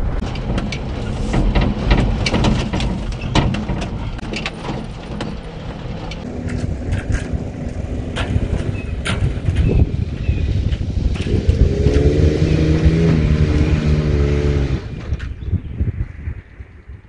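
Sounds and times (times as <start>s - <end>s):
sharp knocks and bumps: 0.0s - 10.0s
truck engine under load: 0.0s - 16.4s.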